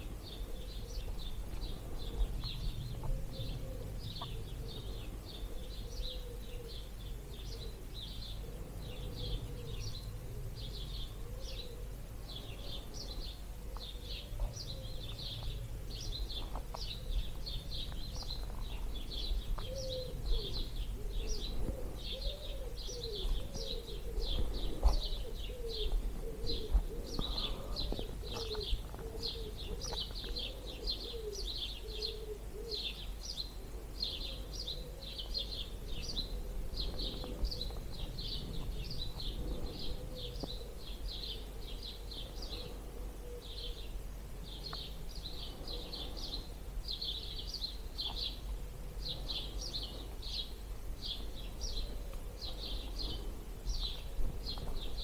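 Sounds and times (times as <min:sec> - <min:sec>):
low wind rumble: 0:00.0 - 0:55.0
songbirds chirping and trilling: 0:00.0 - 0:55.0
low wavering bird call: 0:03.0 - 0:12.0, 0:19.6 - 0:33.0.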